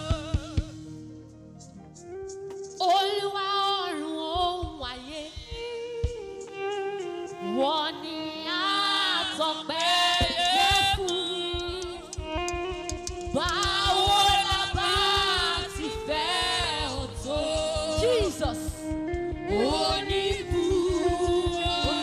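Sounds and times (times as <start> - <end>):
women singing gospel in harmony: 0.0 - 0.9, 7.4 - 12.4, 13.3 - 22.0
held instrumental chords: 4.1 - 22.0
fast low drum beat: 4.6 - 6.2, 10.2 - 22.0.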